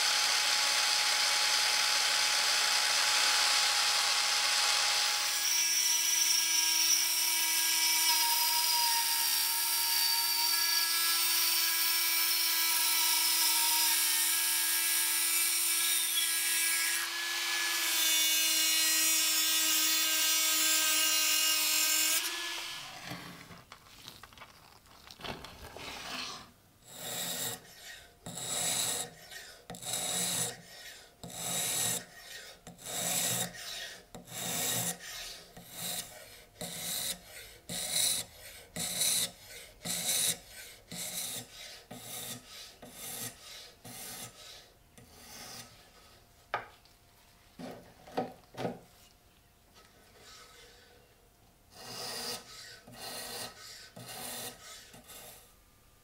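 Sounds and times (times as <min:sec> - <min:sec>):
rotary tool cutting metal: 0:00.0 - 0:23.4, 0:25.8 - 0:27.6, 0:28.3 - 0:30.6, 0:31.2 - 0:32.1, 0:32.8 - 0:44.3.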